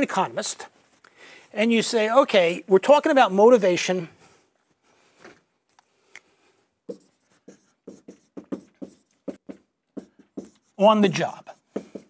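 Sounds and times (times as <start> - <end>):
marker writing on whiteboard: 6.8 - 12.0.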